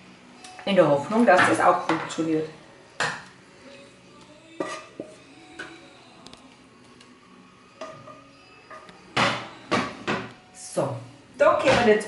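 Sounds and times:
spatula scraping frying pan: 4.5 - 5.2.

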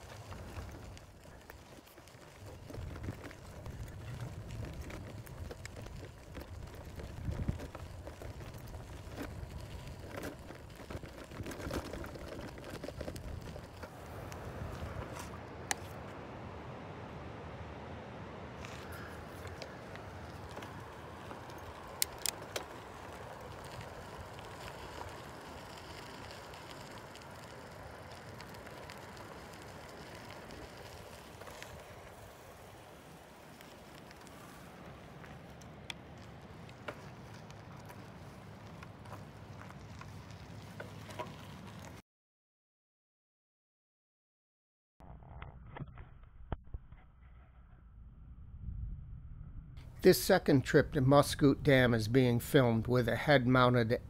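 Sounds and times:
bicycle rolling over gravel: 0.0 - 16.1, 18.4 - 42.0, 49.8 - 54.0
tyre crunches and bike rattles: 0.0 - 16.1, 18.6 - 42.0.

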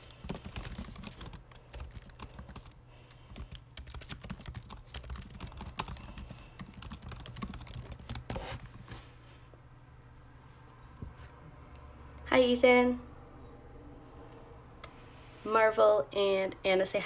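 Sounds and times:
fingers typing and tapping: 0.0 - 8.9
low steady hum: 0.0 - 17.0.

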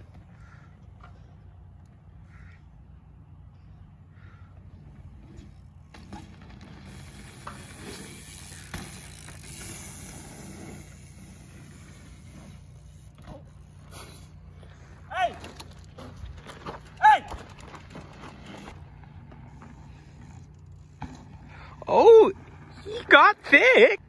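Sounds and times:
tyres rolling on packed dirt: 0.0 - 24.0
bike landing knocks and rattles: 5.4 - 10.5, 13.0 - 21.6
freewheel ticking: 6.7 - 12.3.

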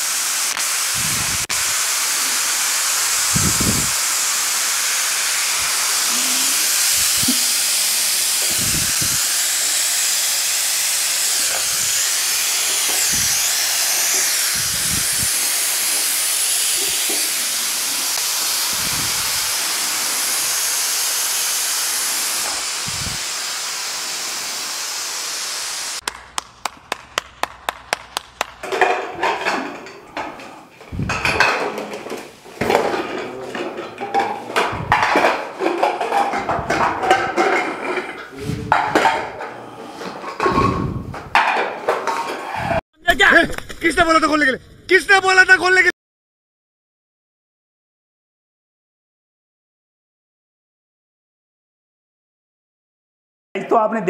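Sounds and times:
pressure cookers whistling: 0.0 - 26.0.

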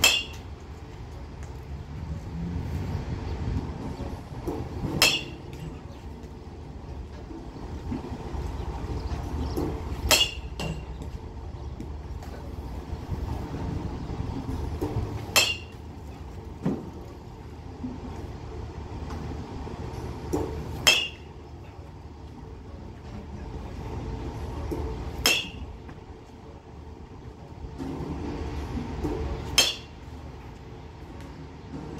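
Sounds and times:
metal bat hitting baseballs: 0.0 - 0.6, 4.4 - 6.3, 9.2 - 11.1, 14.4 - 16.0, 19.9 - 21.8, 24.7 - 26.0, 27.8 - 30.1
steady low rumble: 0.0 - 31.9.

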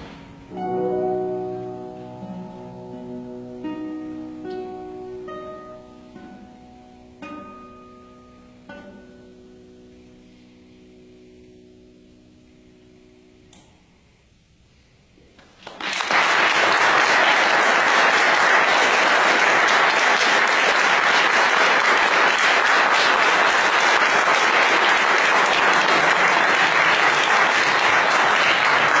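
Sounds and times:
audience applauding: 15.4 - 29.0.

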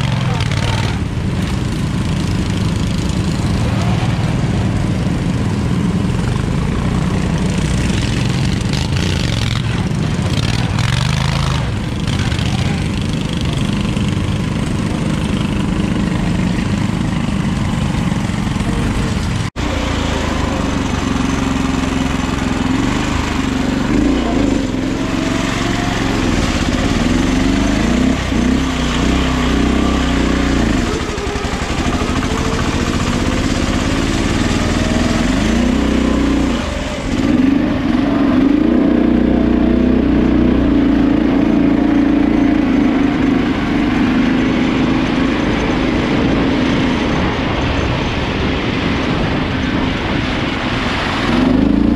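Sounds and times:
lawn tractor engine revving: 0.0 - 47.5.

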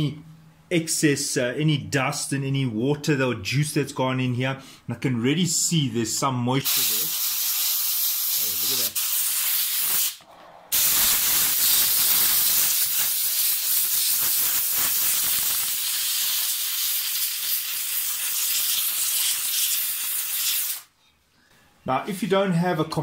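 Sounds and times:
air blow gun hissing: 6.7 - 20.9.

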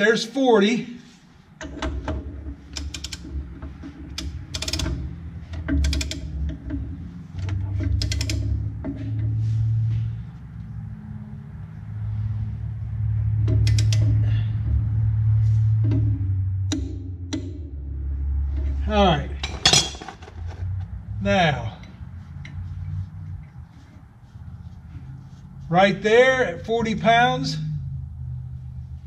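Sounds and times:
torque wrench ratchet clicking: 2.7 - 3.4, 4.1 - 6.6, 7.8 - 8.6, 13.6 - 14.3.

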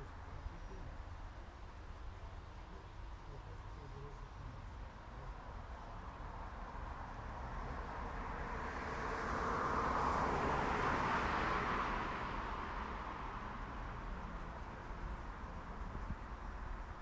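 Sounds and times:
car driving past: 6.2 - 16.4.

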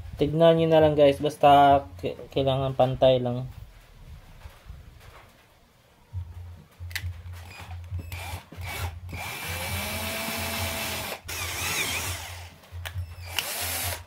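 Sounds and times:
power drill boring plastic pipe: 7.4 - 12.5, 13.2 - 14.0.

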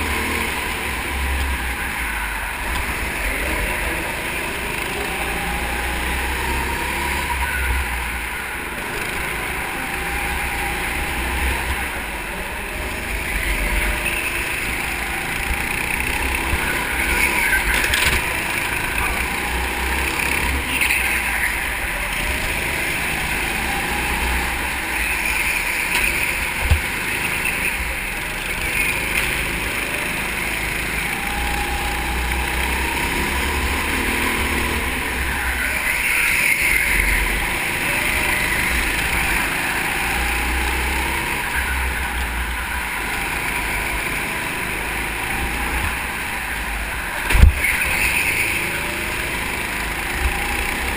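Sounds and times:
go-kart engine running: 0.0 - 50.9.

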